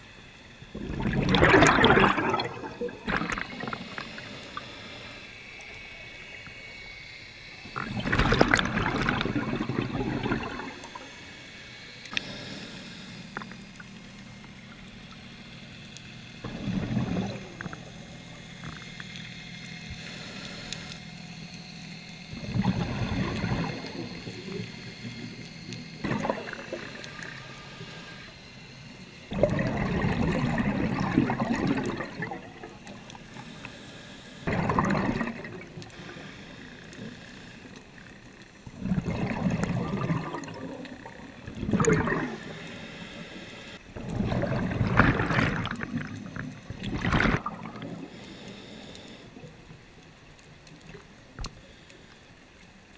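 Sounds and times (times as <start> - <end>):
exhaled bubbles rushing: 0.7 - 4.3, 7.8 - 11.1, 16.5 - 18.0, 22.4 - 24.6, 26.0 - 27.3, 29.3 - 32.9, 34.5 - 35.9, 38.7 - 42.5, 43.9 - 48.1
diver breathing on regulator: 9.0 - 13.8, 22.4 - 29.5, 32.4 - 47.1, 47.7 - 49.7.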